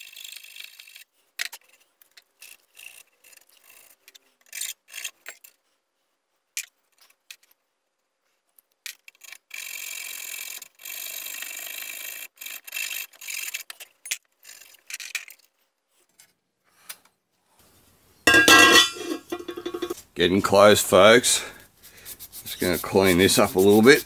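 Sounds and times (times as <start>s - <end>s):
tools clicking: 18.3s - 20.0s
file rasping on metal pipe: 22.1s - 24.0s.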